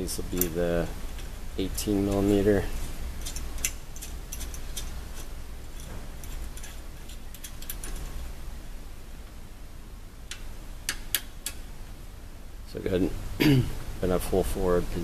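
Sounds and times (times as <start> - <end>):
small metal parts clicking: 3.2 - 8.2.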